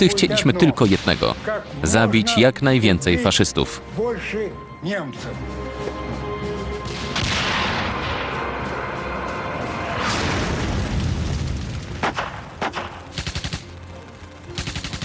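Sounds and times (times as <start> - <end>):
background music: 0.0 - 15.0
tank cannon blast: 6.8 - 8.4, 9.9 - 13.7
explosion: 6.8 - 8.6, 9.6 - 13.1
machine-gun burst: 11.8 - 15.0.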